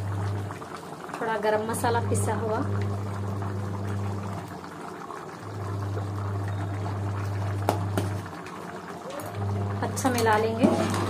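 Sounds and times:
food boiling and bubbling in pot: 0:00.0 - 0:11.0.

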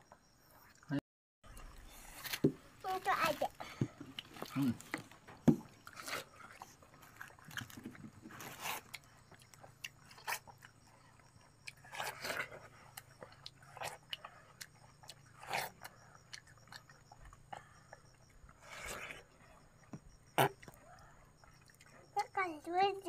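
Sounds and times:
wet chewing: 0:01.5 - 0:22.4
biting into watermelon: 0:04.0 - 0:19.6, 0:20.3 - 0:21.9.

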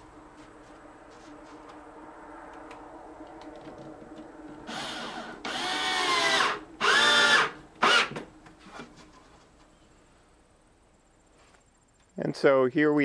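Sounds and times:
cordless drill motor whine: 0:04.7 - 0:08.2.

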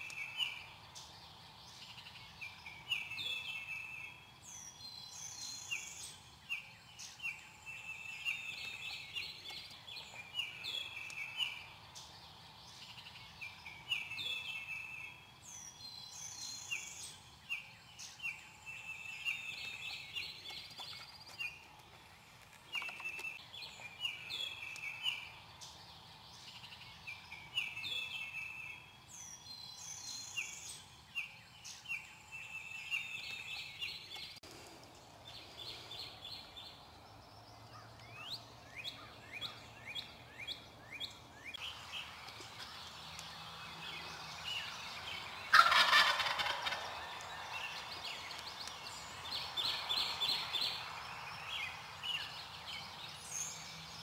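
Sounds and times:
songbirds chirping: 0:00.0 - 0:54.0
turkey gobbling: 0:45.5 - 0:47.0.

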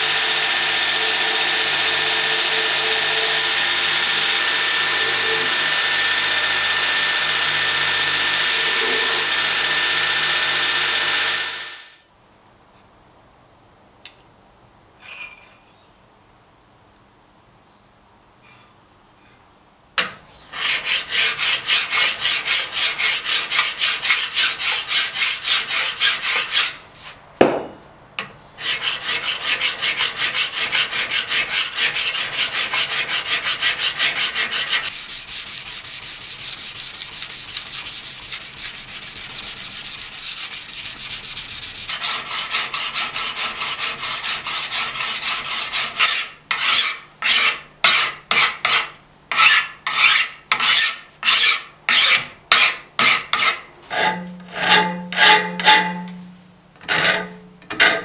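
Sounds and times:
file rasping on steel blade: 0:00.0 - 0:11.2, 0:20.5 - 0:26.8, 0:28.6 - 0:56.2, 0:56.9 - 0:58.0.

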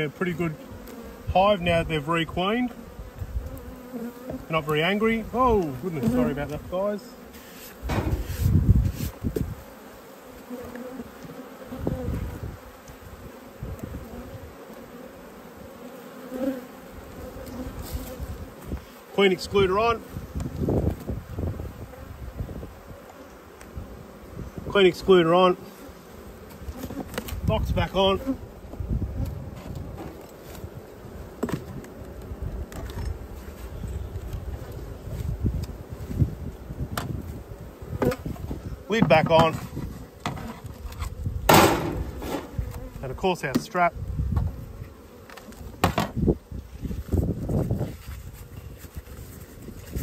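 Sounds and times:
bees buzzing: 0:00.0 - 0:50.0
low thumps: 0:07.8 - 0:09.6, 0:41.4 - 0:42.7.

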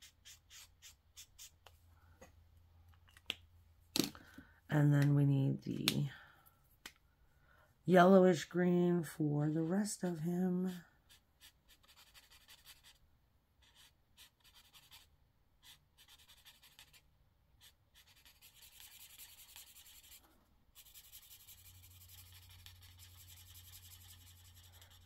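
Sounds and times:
marker scratching on paper: 0:00.0 - 0:01.7, 0:09.6 - 0:13.0, 0:13.6 - 0:17.0, 0:17.6 - 0:20.2, 0:20.8 - 0:25.0.

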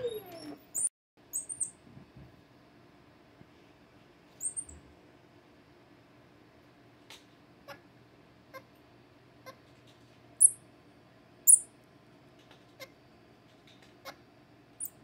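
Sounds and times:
baby monkey high-pitched chirps: 0:00.1 - 0:01.8, 0:04.4 - 0:04.8, 0:10.4 - 0:10.6, 0:11.5 - 0:11.7.

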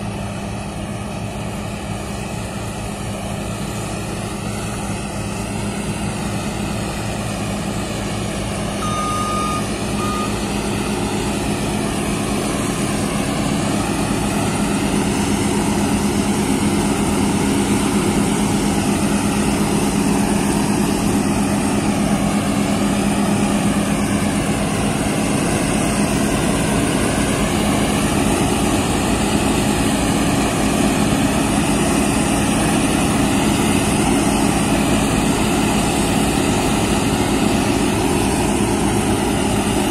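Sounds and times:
combine harvester engine drone: 0:00.0 - 0:39.9
short high beep: 0:08.8 - 0:10.5.

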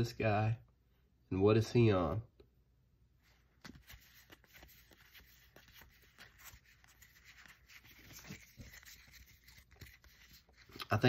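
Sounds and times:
trading cards clicking and rubbing: 0:03.6 - 0:11.0.

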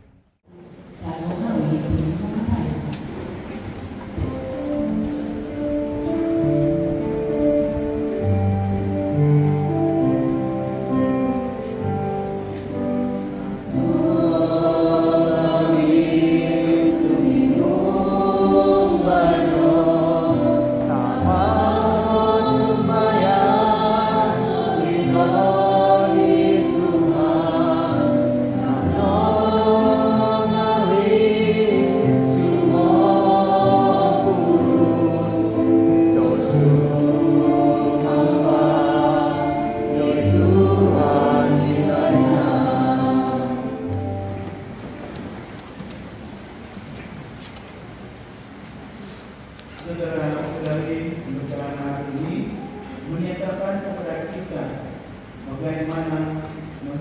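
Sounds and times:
congregation singing a hymn: 0:01.6 - 0:45.6.

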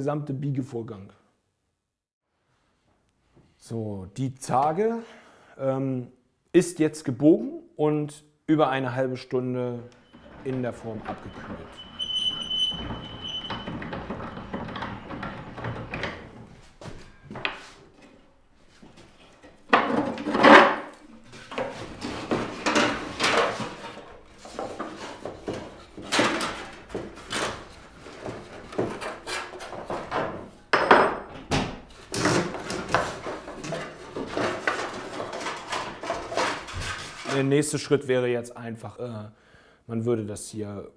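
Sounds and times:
wood scraping and knocking: 0:10.0 - 0:37.5.

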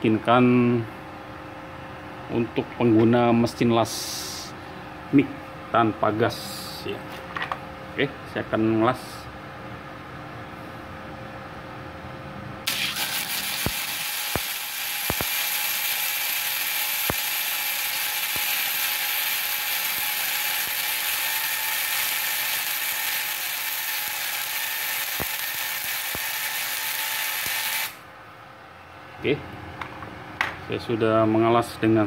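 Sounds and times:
welding arc hissing and popping: 0:12.7 - 0:28.0.

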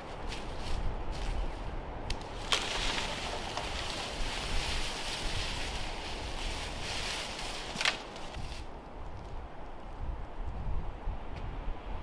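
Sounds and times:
wind rushing through treetops: 0:00.0 - 0:12.0
sharp crackles: 0:02.1 - 0:08.7.

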